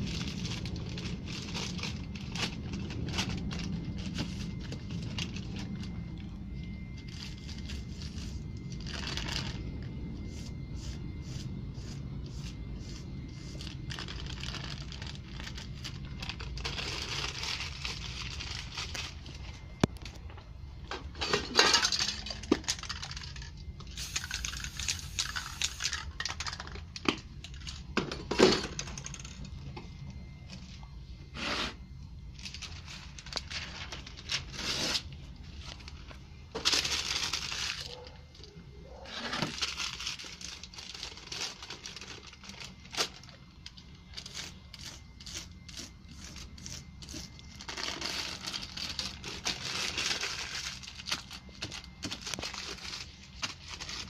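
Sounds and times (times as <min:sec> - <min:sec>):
paper crinkling and tearing: 0:12.4 - 0:19.5, 0:36.6 - 0:38.1, 0:39.3 - 0:43.4, 0:44.1 - 0:54.0
spray paint can hissing: 0:23.9 - 0:26.0.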